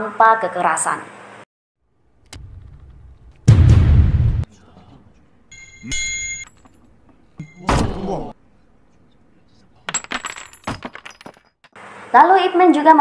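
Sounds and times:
short metallic ring: 5.5 - 6.5.

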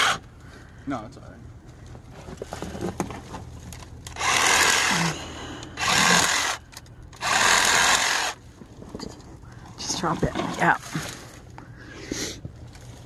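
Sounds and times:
reciprocating saw cutting branches: 0.0 - 0.2, 4.1 - 5.2, 5.8 - 8.4.

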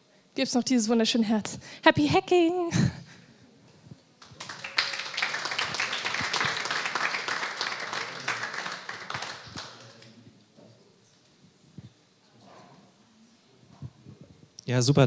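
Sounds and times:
audience applauding: 4.2 - 10.2.

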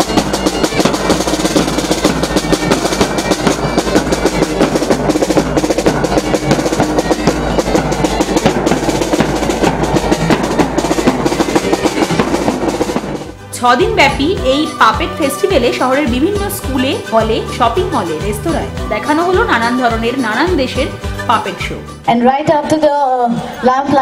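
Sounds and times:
snare drum rolls: 0.0 - 13.4
bass drum beat: 0.0 - 22.8.

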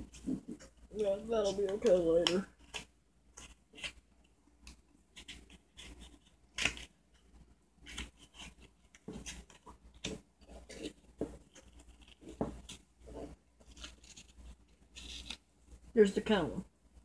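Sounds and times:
gloved hands clicking and scraping: 0.0 - 15.8.

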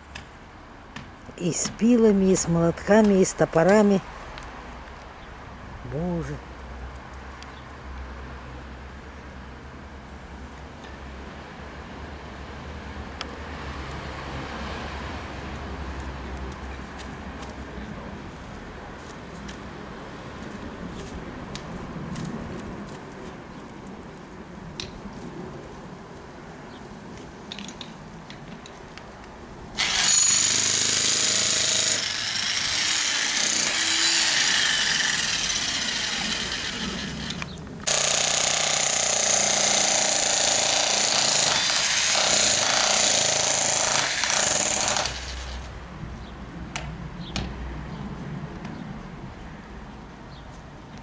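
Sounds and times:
power tool cutting into stump: 29.8 - 45.7.

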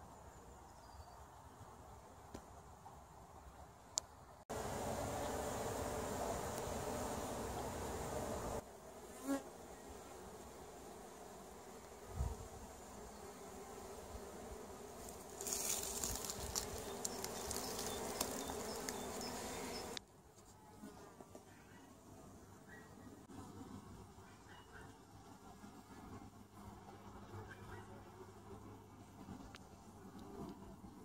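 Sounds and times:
honeybees buzzing: 4.5 - 20.0
faint ticks: 16.0 - 20.0.

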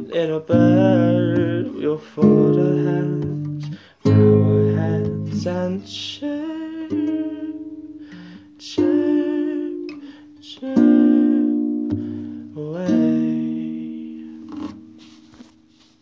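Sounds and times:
acoustic guitar chords strummed: 0.0 - 15.8.

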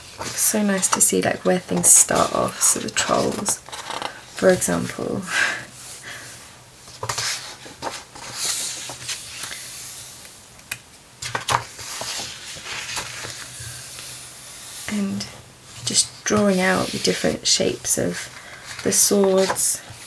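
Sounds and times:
book pages turning: 0.0 - 4.7, 6.9 - 14.8, 18.1 - 20.0
paper swishes and rustles: 0.0 - 4.8, 6.9 - 10.2, 11.3 - 14.9.

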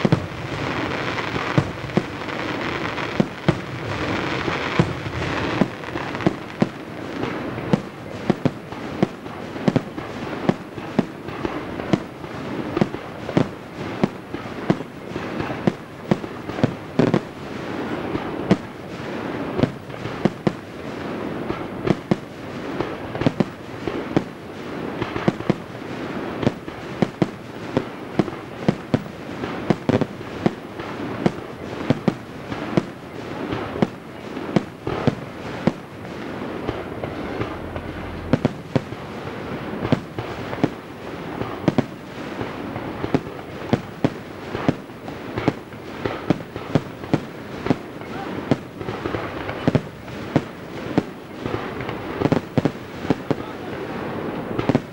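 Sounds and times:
firework shells bursting: 0.0 - 7.8
steady background noise: 26.6 - 54.9.

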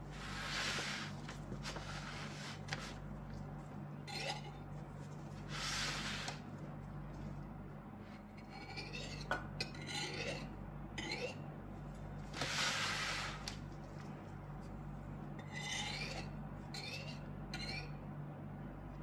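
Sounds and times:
low steady hum: 0.0 - 19.0
knife scraping metal ring: 8.4 - 11.4, 15.4 - 17.9.

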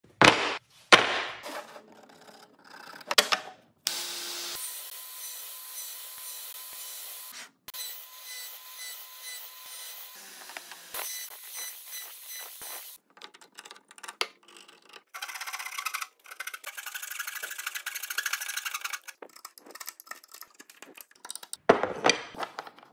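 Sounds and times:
miter saw cutting wood: 3.9 - 13.0
wood pieces clacking together: 13.0 - 22.9.

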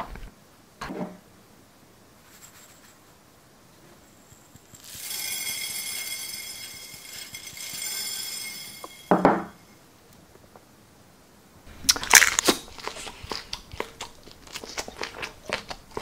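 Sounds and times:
sprinkles pouring from bowl: 4.6 - 9.1
bowl knocking on wooden table: 9.1 - 9.5.

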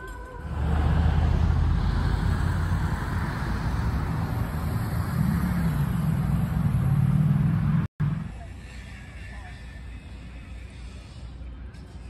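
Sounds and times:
road traffic rumble: 0.2 - 12.0.

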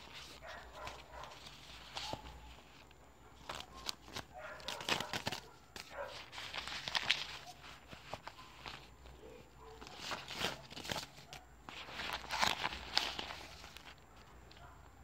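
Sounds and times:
banknotes being counted: 3.4 - 9.1.

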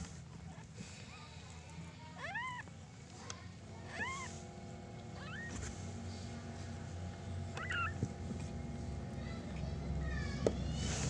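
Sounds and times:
kittens mewing: 2.1 - 2.8, 3.6 - 4.4, 5.0 - 5.7, 7.5 - 8.2.

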